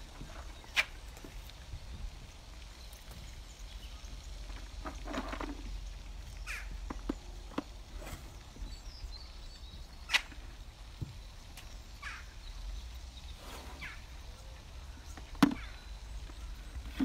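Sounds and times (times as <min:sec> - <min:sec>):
sharp cracks and clicks: 0:10.1 - 0:10.4.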